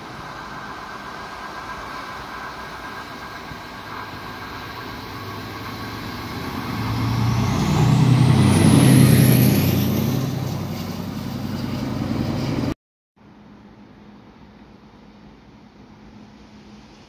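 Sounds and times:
diesel locomotive passing: 0.0 - 12.8
high whine rising in pitch: 3.7 - 12.8.

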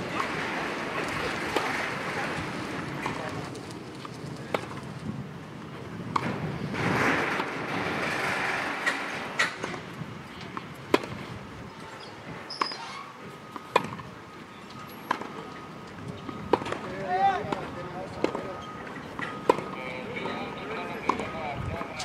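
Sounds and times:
racket hitting tennis ball: 1.2 - 2.0, 4.5 - 4.8, 10.5 - 11.2, 13.7 - 14.0.

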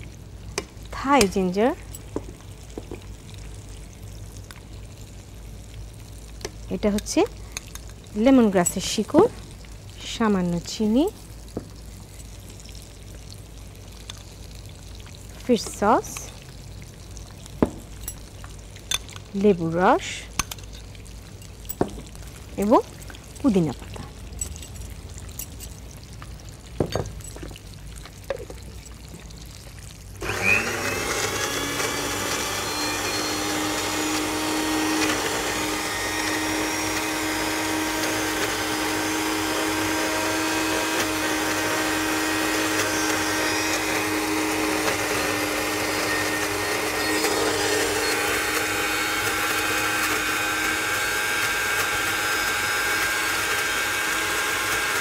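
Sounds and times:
electric blender running: 30.2 - 55.0.

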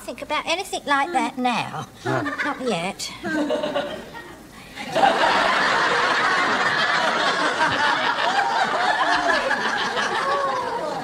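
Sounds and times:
studio audience laughing: 3.3 - 11.0.

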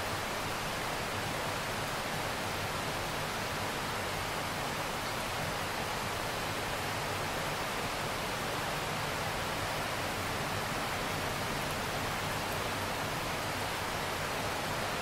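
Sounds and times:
rain falling on water: 0.0 - 15.0.

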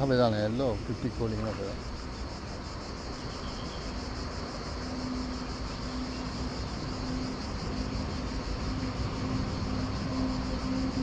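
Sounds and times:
flowing water hiss: 0.0 - 11.0.

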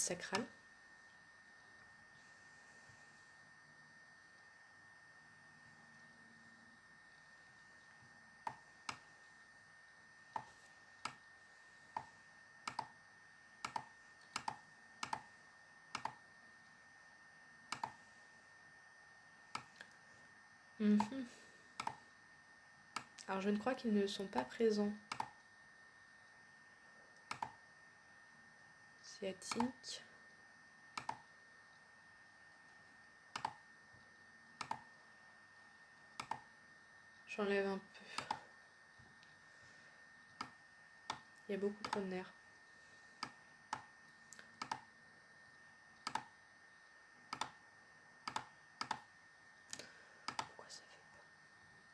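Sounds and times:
computer mouse clicking: 8.4 - 9.0, 10.3 - 11.2, 11.9 - 12.9, 13.6 - 15.3, 15.9 - 16.2, 17.7 - 18.0, 19.5 - 20.0, 21.8 - 22.0, 22.9 - 23.3, 25.1 - 25.4, 27.2 - 27.6, 29.5 - 29.7, 31.0 - 31.3, 33.3 - 33.6, 34.6 - 34.9, 36.2 - 36.5, 38.2 - 38.4, 40.3 - 42.0, 43.2 - 44.9, 46.0 - 46.3, 47.3 - 47.6, 48.2 - 49.1, 49.7 - 50.6.

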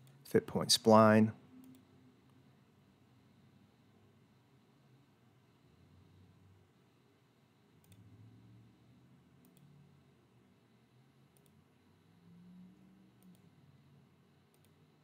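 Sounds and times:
computer mouse clicks: 1.6 - 1.9, 7.8 - 8.1, 9.4 - 9.7, 11.3 - 11.6, 13.2 - 13.5, 14.5 - 14.8.

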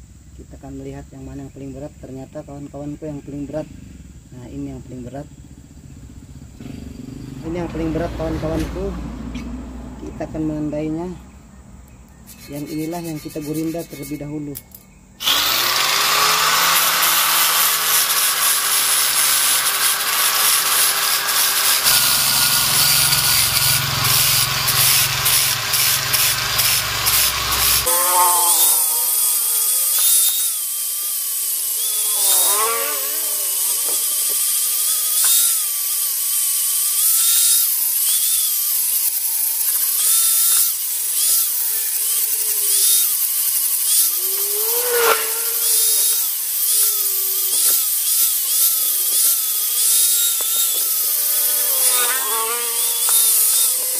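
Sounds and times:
angle grinder grinding metal: 12.2 - 53.9.

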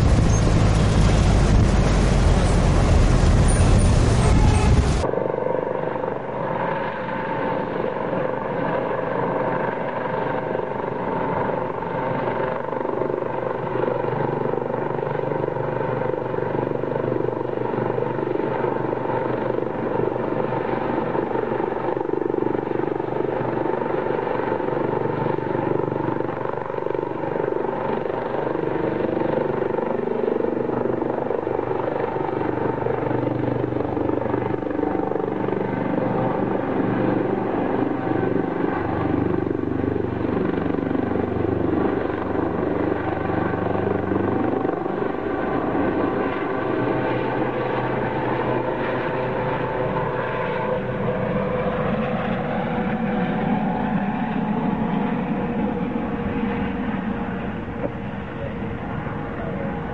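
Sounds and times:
helicopter turbine and rotor: 0.0 - 59.9.

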